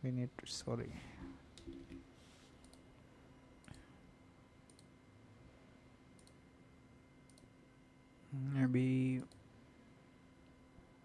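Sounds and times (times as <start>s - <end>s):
faint steady hum: 0.0s - 11.0s
computer mouse clicks: 2.6s - 2.8s, 4.7s - 4.9s, 6.2s - 6.4s, 7.3s - 7.5s.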